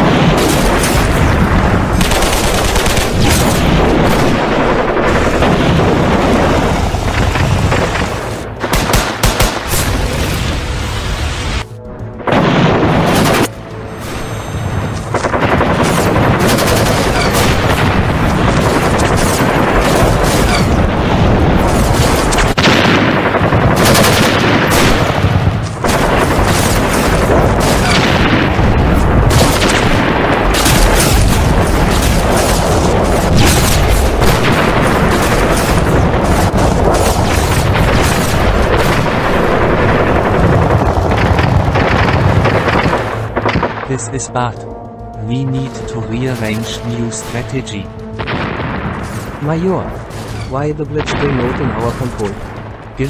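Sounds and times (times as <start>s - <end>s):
rifle and machine-gun fire: 0.0s - 10.2s, 15.0s - 43.9s.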